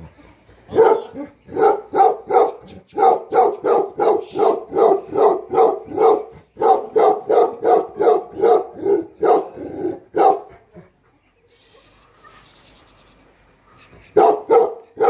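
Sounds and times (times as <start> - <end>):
dog barking: 0.7 - 10.5, 14.2 - 15.0.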